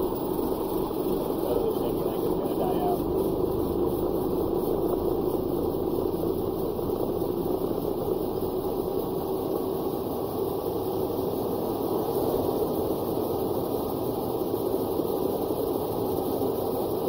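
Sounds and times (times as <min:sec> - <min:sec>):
diesel engine running: 0:00.0 - 0:11.2.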